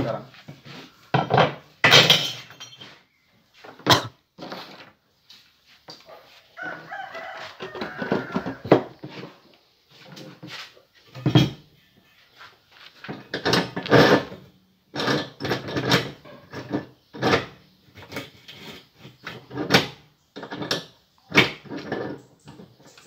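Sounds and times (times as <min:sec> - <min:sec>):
metal clanks and knocks: 0:01.1 - 0:03.0, 0:11.1 - 0:11.7, 0:13.0 - 0:22.7.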